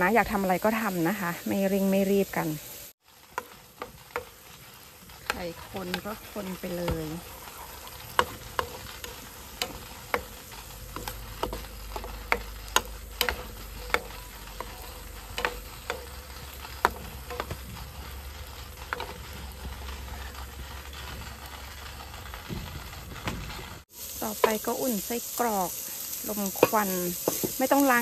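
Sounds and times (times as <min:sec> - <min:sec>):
eggs sizzling in a frying pan: 0:00.0 - 0:28.0
spatula stirring and scraping: 0:03.0 - 0:28.0
spatula clicking on pan: 0:08.1 - 0:17.6.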